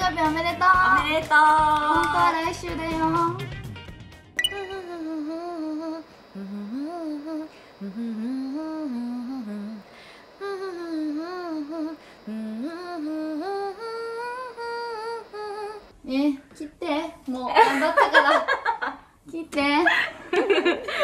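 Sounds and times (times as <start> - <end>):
woman humming: 4.7 - 15.9.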